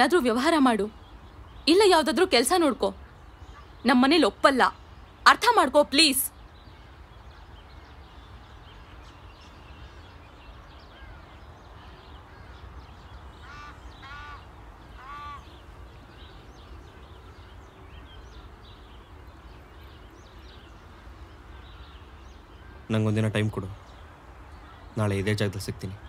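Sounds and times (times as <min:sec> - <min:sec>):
bird giving loud calls: 0:13.3 - 0:15.7.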